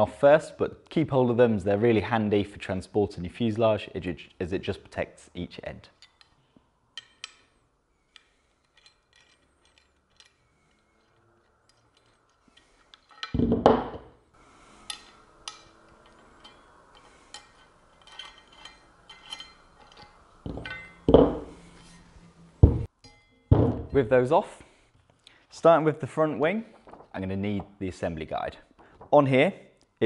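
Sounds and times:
loud scrape: 0:21.4 - 0:22.5.

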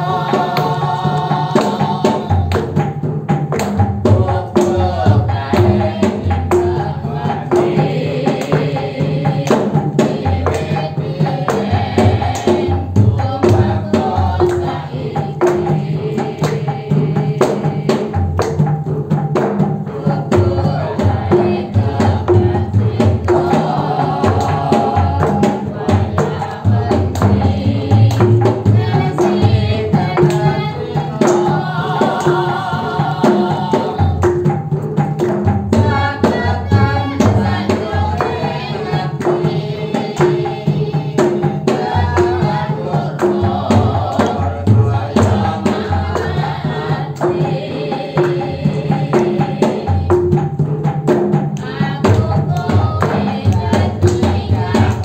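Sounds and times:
person singing: 0:00.0 - 0:02.5.

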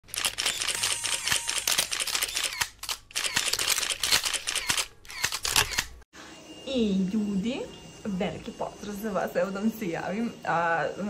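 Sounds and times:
camera shutter clicking: 0:00.1 - 0:06.0.

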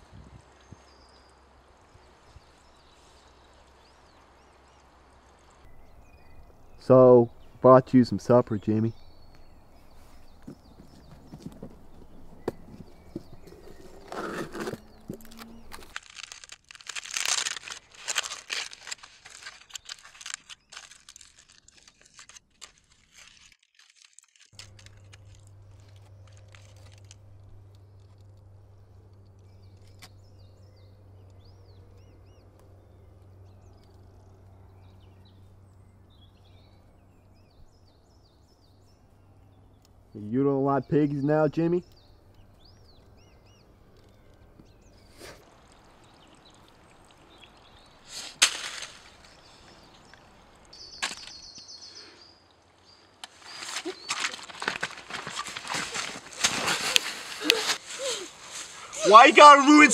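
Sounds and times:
aluminium foil crinkling: 0:13.7 - 0:28.4, 0:53.2 - 0:59.7.

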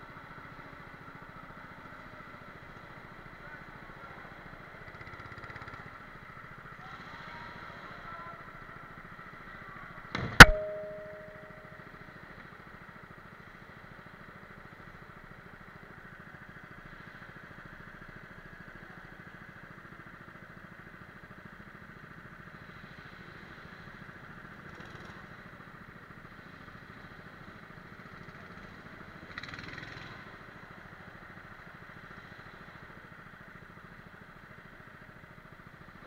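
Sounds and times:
go-kart engine running: 0:00.0 - 0:10.4, 0:11.0 - 0:36.0
brief sharp noise: 0:10.4 - 0:11.6.

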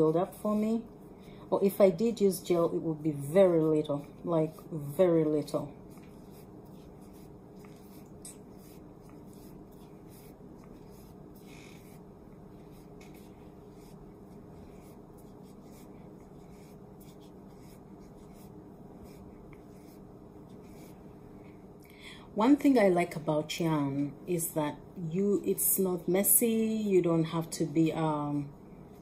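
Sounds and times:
steady low hum: 0:00.0 - 0:29.0
hands rustling and scratching hair: 0:03.6 - 0:21.1.

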